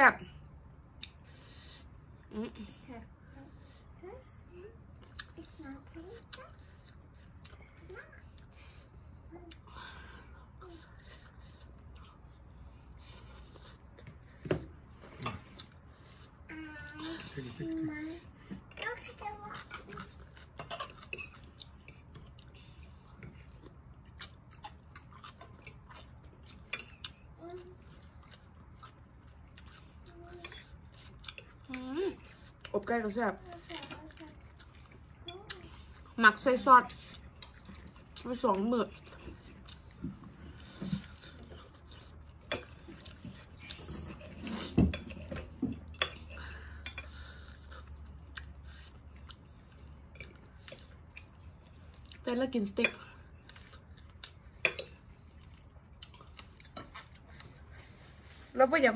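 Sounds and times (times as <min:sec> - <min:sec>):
chewing and wet mouth clicks: 0:01.0 - 0:01.2, 0:05.0 - 0:05.5, 0:19.6 - 0:32.7, 0:36.9 - 0:40.4, 0:45.0 - 0:57.5.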